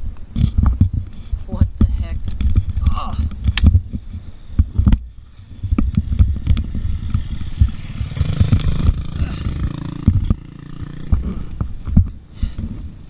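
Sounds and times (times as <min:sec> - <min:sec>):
dirt bike engine running: 0:04.6 - 0:13.0.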